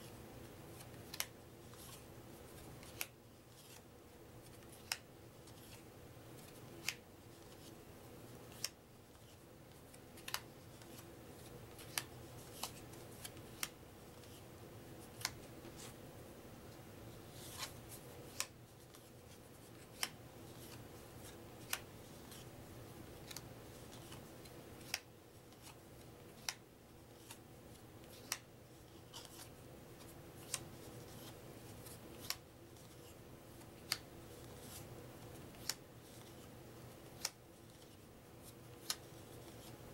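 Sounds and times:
paper cards flipping: 0:02.6 - 0:03.8, 0:08.5 - 0:14.4, 0:17.4 - 0:22.5, 0:23.2 - 0:24.2, 0:24.8 - 0:25.8, 0:28.0 - 0:33.2.

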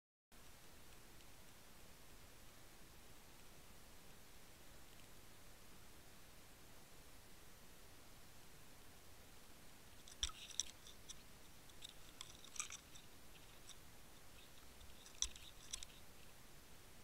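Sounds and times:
faint hiss: 0:00.4 - 0:17.0
underwater clicks and crackling: 0:10.0 - 0:16.0.

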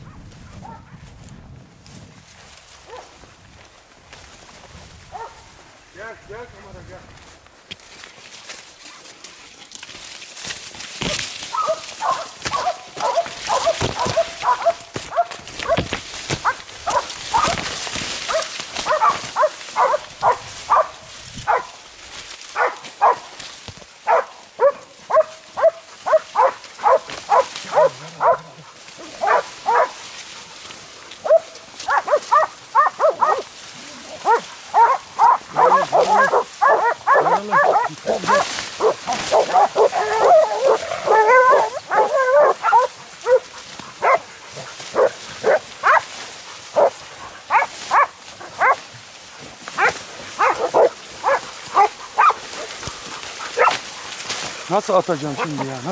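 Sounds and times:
dogs barking: 0:00.0 - 0:01.0, 0:02.8 - 0:03.1, 0:05.1 - 0:05.5, 0:11.0 - 0:21.9, 0:22.5 - 0:23.4, 0:24.0 - 0:30.1, 0:31.2 - 0:48.9, 0:49.7 - 0:54.5, 0:55.2 - 0:55.9.

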